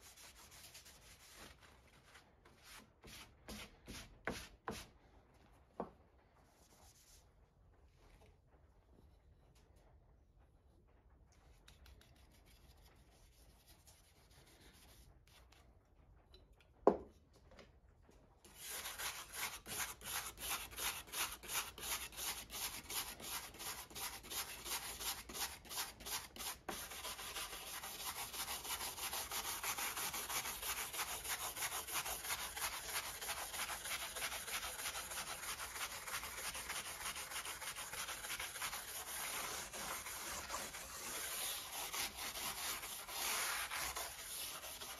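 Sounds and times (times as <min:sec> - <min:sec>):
sanding block rubbing metal: 0:18.5 - 0:44.9.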